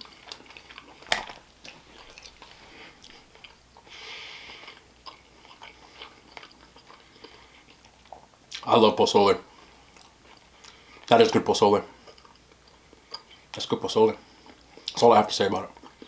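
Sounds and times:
chewing with wet smacks: 0.0 - 3.9, 4.5 - 8.8, 9.8 - 11.2, 12.0 - 13.6.

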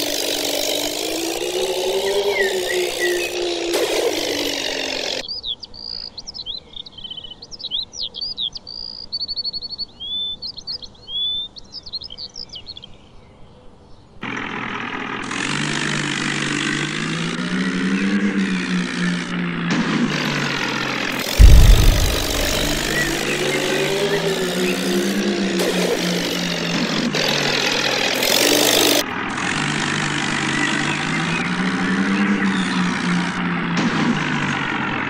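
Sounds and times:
vehicle engine: 0.7 - 5.2, 14.2 - 35.0
birds chirping and trilling: 1.4 - 3.7, 5.2 - 14.2, 30.5 - 33.2.

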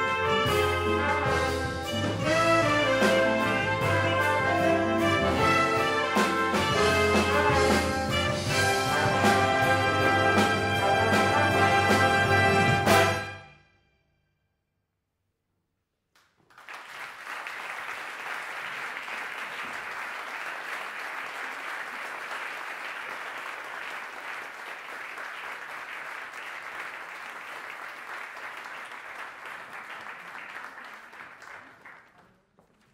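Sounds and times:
audience applauding: 16.2 - 32.9.

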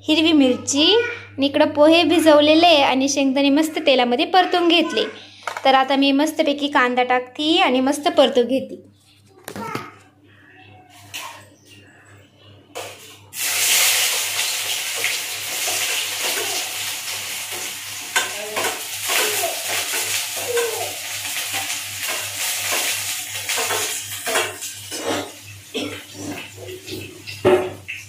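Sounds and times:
onion sizzling in hot oil: 13.3 - 28.0.

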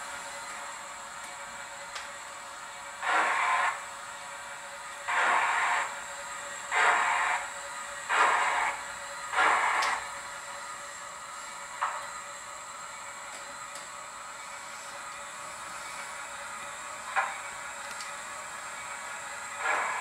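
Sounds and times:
steam locomotive chuffs from loudspeaker: 2.6 - 11.0, 15.8 - 20.0.

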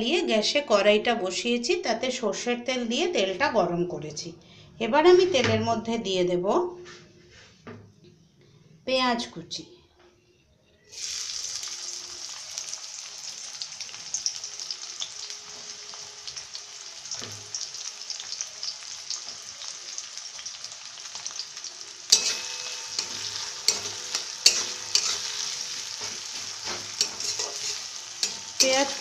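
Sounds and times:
onions sizzling in oil: 10.9 - 29.0
spatula scraping a metal pan: 22.1 - 29.0.

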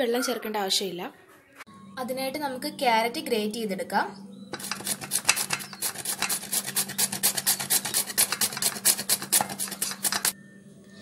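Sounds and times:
carrot grating on plastic grater: 4.6 - 10.4.

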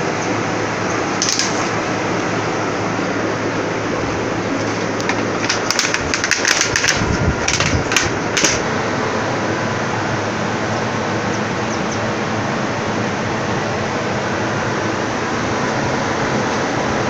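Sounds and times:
plastic bottle crackling: 1.2 - 1.7, 4.6 - 8.6.

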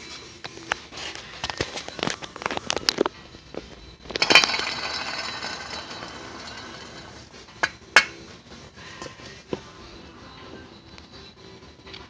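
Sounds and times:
hub bearing grinding metal on metal: 4.1 - 8.2.

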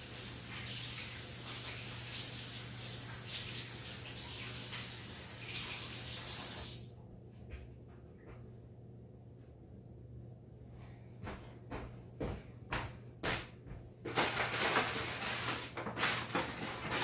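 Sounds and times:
water running from sink tap: 0.0 - 6.9.

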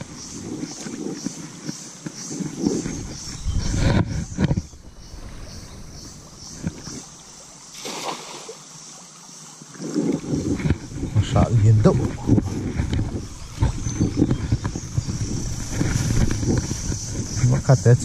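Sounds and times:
wind rumble on microphone: 0.0 - 7.4, 9.8 - 18.0
water sloshing: 0.0 - 17.7
cast net splashing into water: 7.7 - 8.6.

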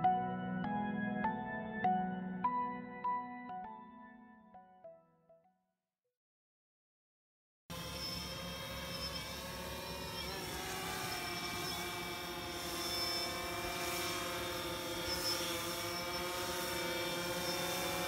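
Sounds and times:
drone propellers whining: 7.7 - 18.0.

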